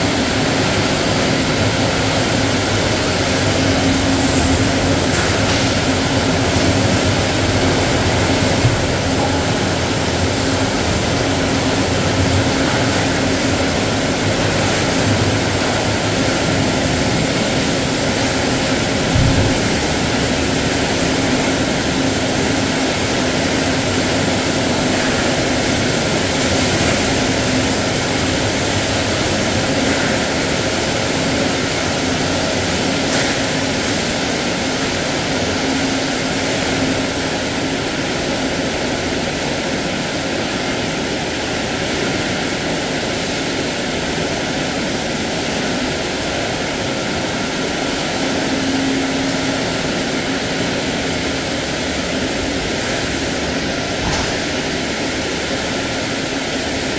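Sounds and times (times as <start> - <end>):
factory machinery drone: 0.0 - 56.9.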